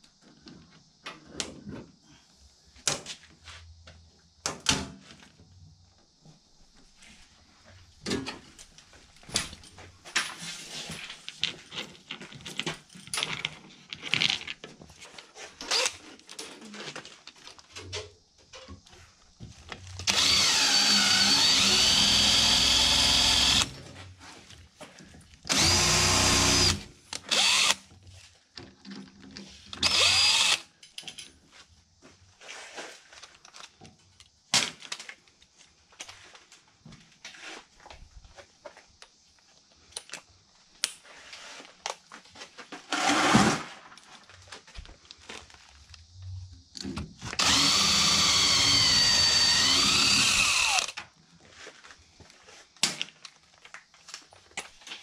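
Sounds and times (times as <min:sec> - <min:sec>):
clicks and knocks of parts handled: 0:11.1 - 0:18.8, 0:30.8 - 0:31.4, 0:39.8 - 0:41.0
cordless drill driving screws: 0:15.7 - 0:15.9, 0:20.0 - 0:23.8, 0:25.5 - 0:27.8, 0:29.8 - 0:30.7, 0:47.4 - 0:51.0.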